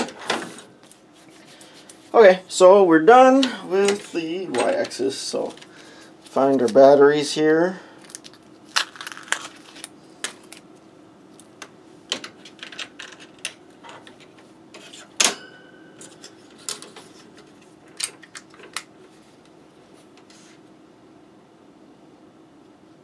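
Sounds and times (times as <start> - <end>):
faint steady hum: 0.0 - 23.0
hands sorting plastic parts: 8.0 - 10.7, 11.6 - 15.0, 16.0 - 19.0
short ringing tone: 15.3 - 16.2.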